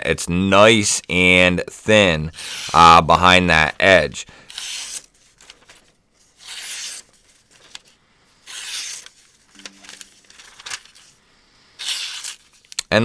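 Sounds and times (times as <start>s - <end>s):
paper rustling: 4.5s - 11.2s, 11.8s - 12.8s
knife slicing paper: 6.4s - 7.8s, 8.4s - 11.0s, 11.8s - 12.7s.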